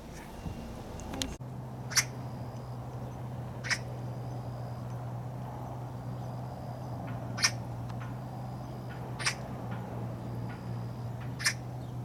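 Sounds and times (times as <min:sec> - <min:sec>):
steady low hum: 0:00.0 - 0:12.0
magpie harsh calls: 0:01.9 - 0:02.4, 0:03.6 - 0:04.4, 0:07.3 - 0:07.7, 0:08.8 - 0:09.5, 0:11.3 - 0:11.8.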